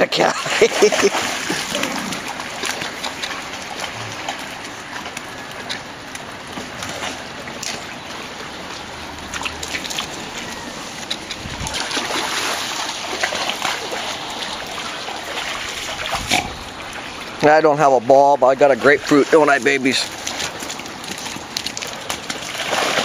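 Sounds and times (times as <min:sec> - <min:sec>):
dogs splashing through water: 0:00.0 - 0:23.0
steady wash of water: 0:00.0 - 0:23.0.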